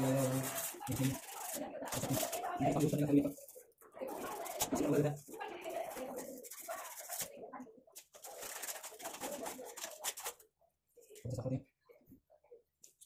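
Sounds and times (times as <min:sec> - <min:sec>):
sandpaper rasping on a pipe: 0:00.0 - 0:02.4.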